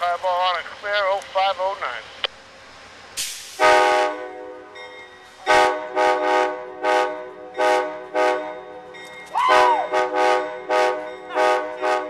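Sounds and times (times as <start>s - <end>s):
hiss of air: 3.1s - 3.8s
locomotive air horn: 3.6s - 4.7s, 5.5s - 12.0s.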